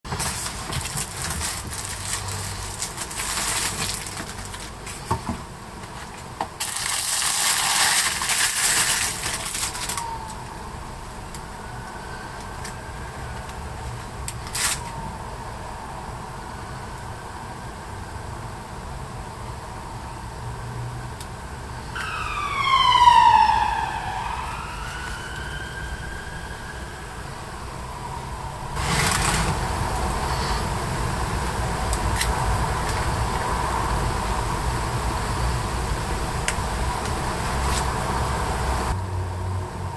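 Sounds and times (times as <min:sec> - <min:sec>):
plastic packaging crinkling: 0:00.1 - 0:05.1, 0:05.9 - 0:10.4, 0:28.8 - 0:29.7
background hiss: 0:00.1 - 0:39.6
siren wailing: 0:09.6 - 0:13.3, 0:21.9 - 0:28.8.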